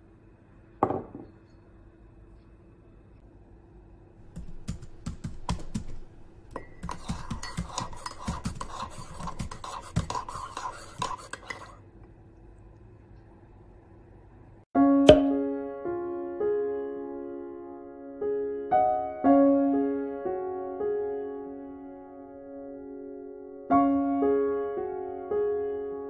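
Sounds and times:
spoon knocking against mug: 4.4s - 11.8s
spoon stirring and clinking in mug: 6.5s - 11.8s.

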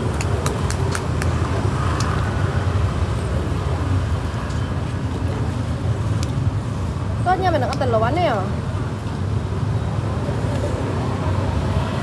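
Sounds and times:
motorbikes and scooters passing: 0.0s - 6.0s, 9.7s - 12.0s
street traffic rumble: 0.0s - 12.0s.

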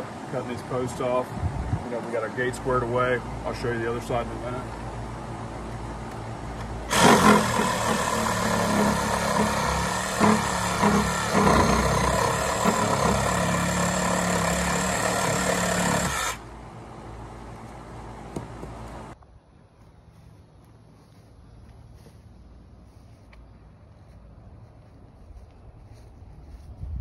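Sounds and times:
reciprocating saw cutting wood: 6.9s - 16.4s.

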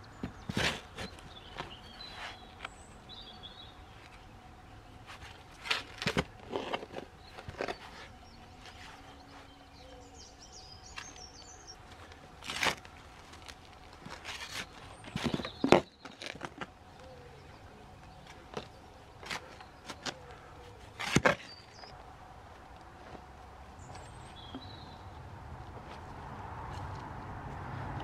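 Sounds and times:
spade digging into soil: 0.4s - 2.4s, 21.0s - 21.6s.

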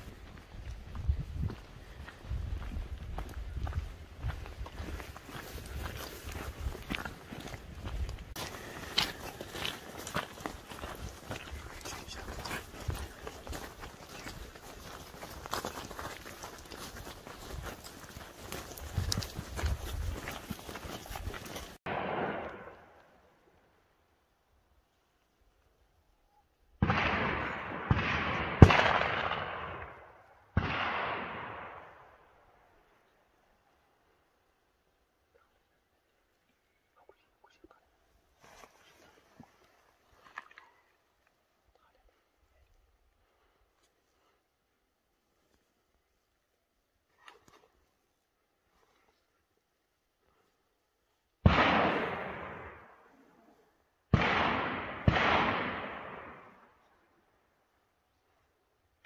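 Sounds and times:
gunshots: 21.9s - 22.9s, 26.8s - 32.0s, 51.4s - 52.9s, 54.1s - 56.6s
shotgun shots with echo: 21.9s - 22.9s, 26.8s - 30.0s, 30.6s - 32.0s, 51.4s - 52.8s, 54.1s - 56.6s.

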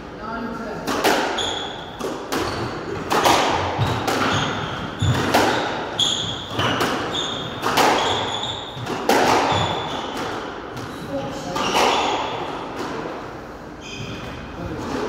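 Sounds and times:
squash ball hitting rackets and walls: 0.8s - 13.2s
shoes squeaking on wooden floor: 3.8s - 5.3s, 5.9s - 8.9s.

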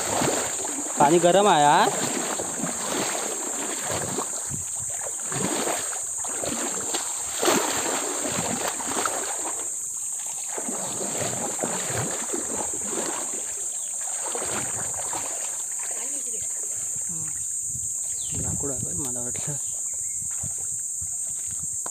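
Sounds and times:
sharp water splash: 0.0s - 16.9s
water splashing and sloshing: 0.0s - 21.9s.

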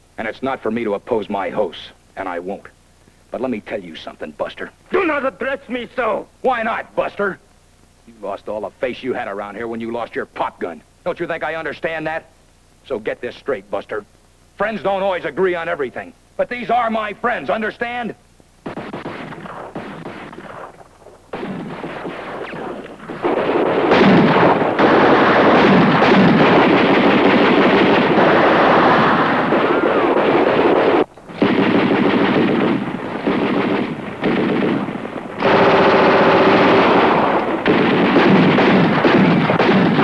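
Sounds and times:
automatic gunfire: 18.6s - 40.0s.

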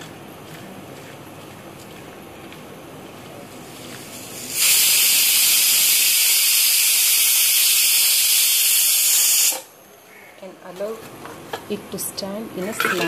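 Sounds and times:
loud high-pitched hiss: 4.1s - 9.7s.

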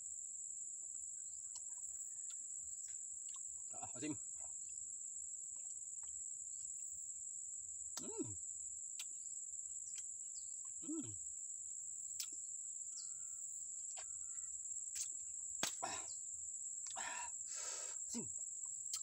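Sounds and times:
insects droning: 0.0s - 19.0s
man grunting: 10.8s - 11.2s
wet mouth clicks and smacks: 12.2s - 12.4s
breathy exhale: 17.0s - 18.0s.

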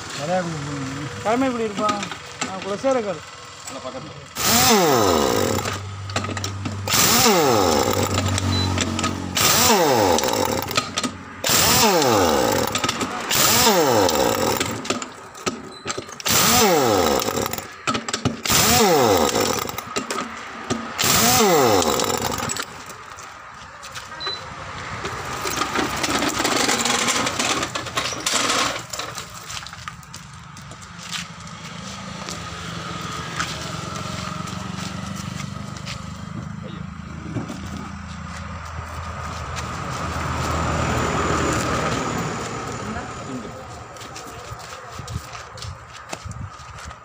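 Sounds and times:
air impact wrench hammering: 4.3s - 23.0s, 25.4s - 29.1s.

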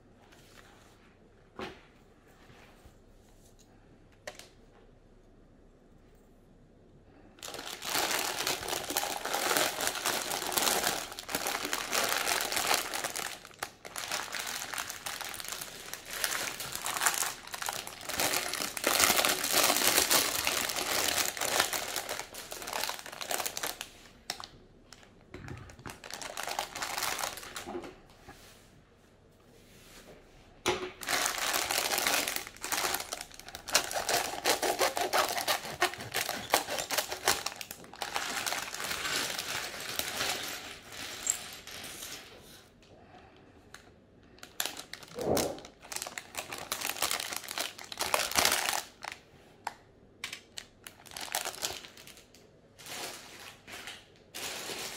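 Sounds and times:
plastic bags crinkling: 7.4s - 27.8s, 31.0s - 42.2s, 44.4s - 49.3s, 50.3s - 54.9s.

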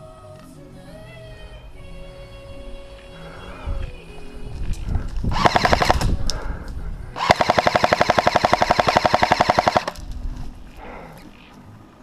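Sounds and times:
airsoft gun firing bursts: 5.3s - 6.2s, 7.2s - 10.0s.

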